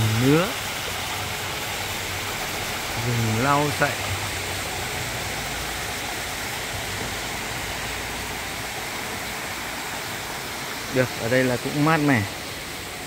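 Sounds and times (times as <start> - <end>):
stream rushing: 0.0 - 13.0.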